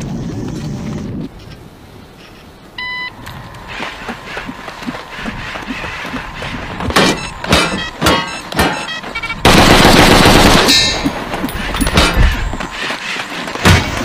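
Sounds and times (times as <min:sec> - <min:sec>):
automatic gunfire burst: 0:09.4 - 0:11.0.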